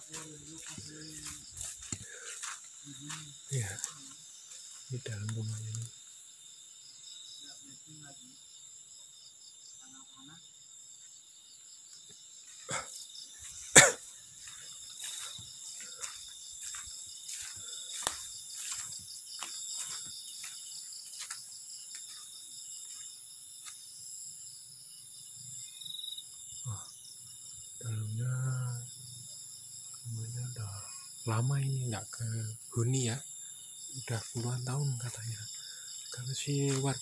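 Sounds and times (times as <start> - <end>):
crickets trilling: 0.0 - 37.0
low voice: 4.9 - 5.9, 27.8 - 28.9, 30.1 - 33.2, 34.0 - 35.4.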